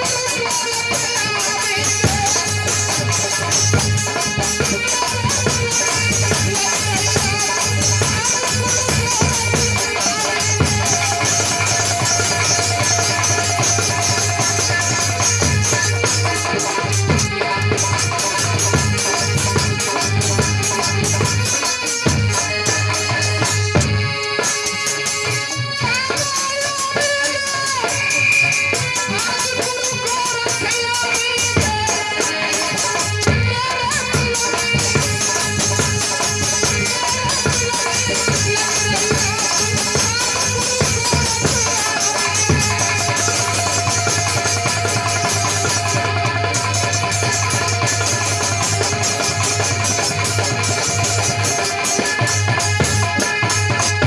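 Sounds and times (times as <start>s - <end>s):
drum beat: 0.0s - 54.0s
rattle beat: 0.0s - 54.0s
sharp percussion strokes: 0.0s - 54.0s.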